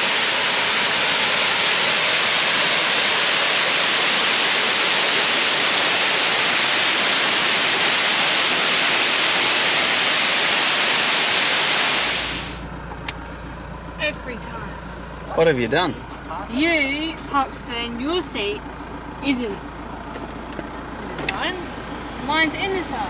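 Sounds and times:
waterfall rushing: 0.0 - 12.6.

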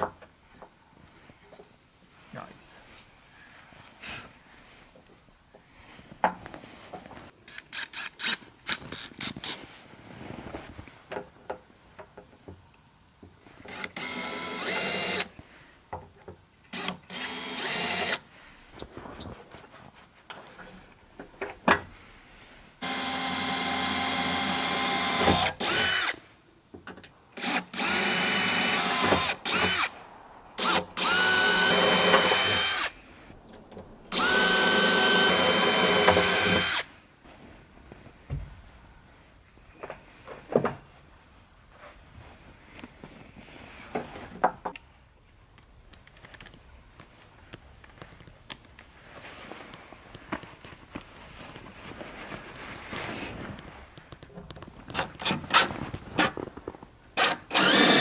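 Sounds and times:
drill boring into steel: 22.8 - 26.2, 27.4 - 29.9, 30.6 - 32.9, 34.1 - 36.8, 57.2 - 58.0.

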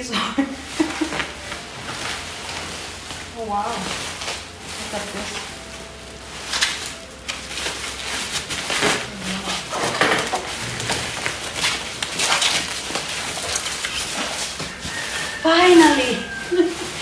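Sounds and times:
bubble wrap crinkling: 0.0 - 17.0.

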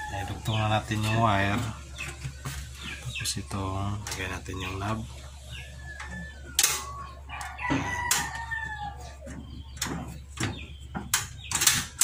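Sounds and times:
rooster crowing: 0.0 - 0.5, 5.7 - 9.4.

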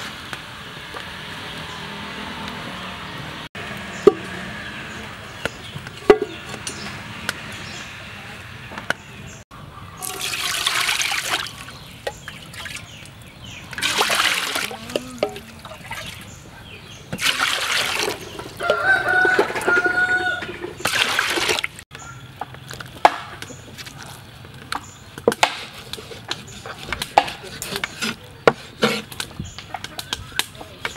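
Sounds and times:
water pouring into metal pot: 10.0 - 11.6, 13.7 - 16.1, 17.2 - 18.7
rooster crowing: 18.6 - 20.5.

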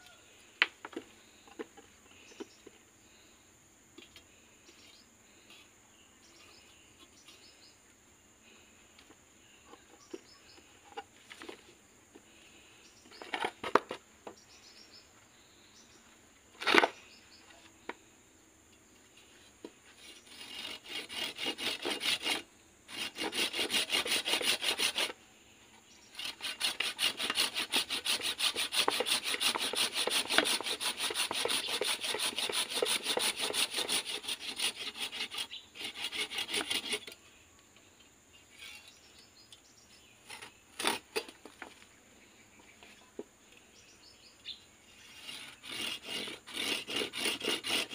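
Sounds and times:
hand saw cutting root: 20.0 - 25.2, 26.1 - 37.2, 40.3 - 41.3, 45.0 - 47.9.

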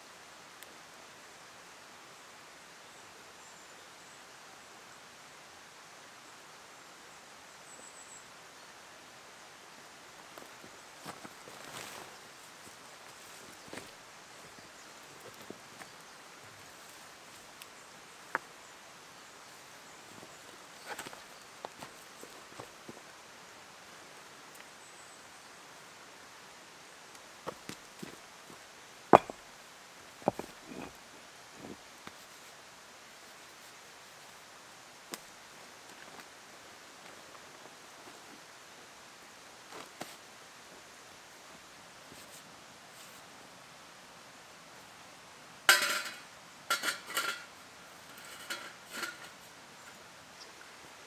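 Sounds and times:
footsteps on forest litter: 10.4 - 14.0
stone striking tarp stake: 29.1 - 29.4, 30.2 - 31.0
metal clinks and scrapes: 30.2 - 31.0, 45.7 - 49.5
metal stove clanking: 45.7 - 47.4.

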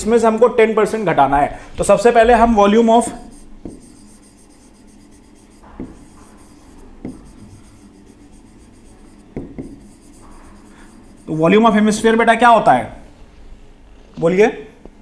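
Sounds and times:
pen scratching on board: 3.0 - 12.0
pen tapping on board: 3.3 - 8.3, 9.3 - 10.6.

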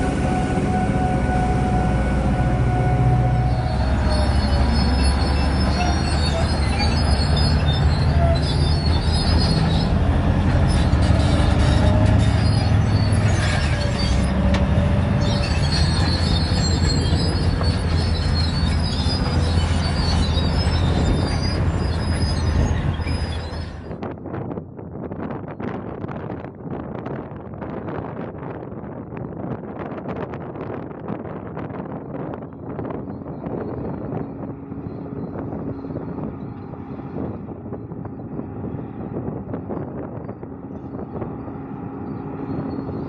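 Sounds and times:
truck engine rumble: 0.0 - 43.0
thin squealing tones: 0.2 - 24.0, 32.7 - 39.0, 39.7 - 43.0.

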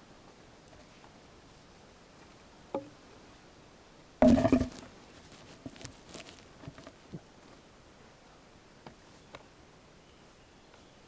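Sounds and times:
wooden poles knocking together: 4.2 - 4.9.

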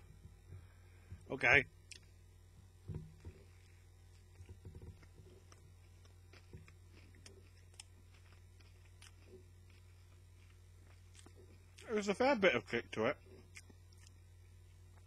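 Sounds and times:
steady low hum: 0.0 - 15.0
chewing crispy food: 3.3 - 15.0.

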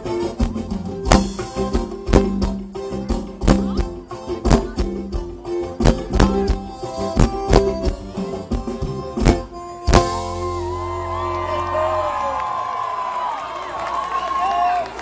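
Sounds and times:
drum beat with sharp hits: 0.0 - 10.7
acoustic guitar: 0.0 - 11.2
accordion holding chords: 0.0 - 11.8.

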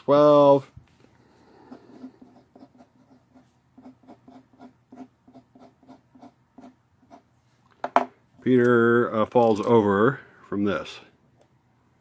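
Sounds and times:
pen scratching on paper: 1.7 - 7.3.

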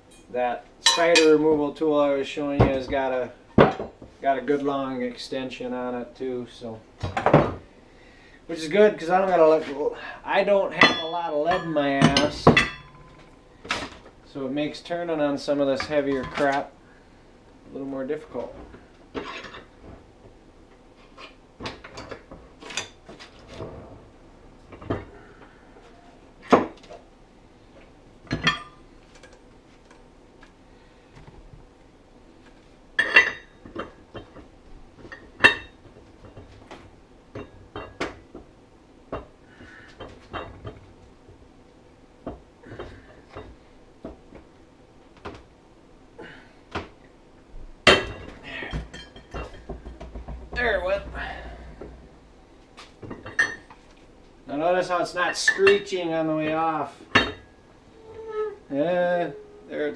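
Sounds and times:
metal tools clanking: 0.1 - 1.4, 10.7 - 13.9, 47.9 - 52.0.

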